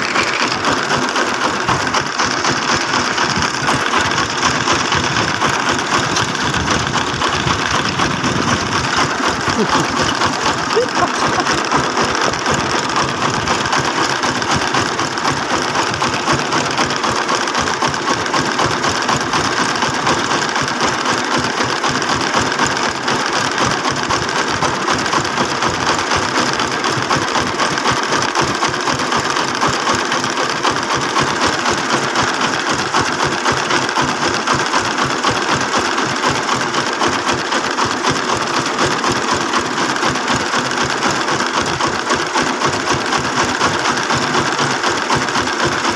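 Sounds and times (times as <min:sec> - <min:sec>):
truck engine chugging: 0:00.0 - 0:34.4.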